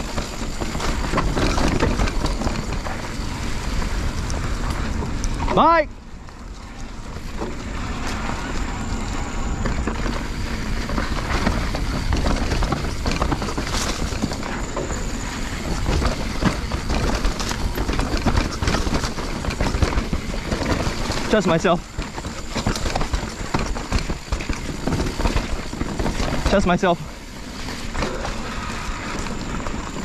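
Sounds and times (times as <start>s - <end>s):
bike tyres rolling on dirt: 0.0s - 30.0s
bike clicks knocks and rattles: 9.6s - 15.0s, 15.6s - 26.8s.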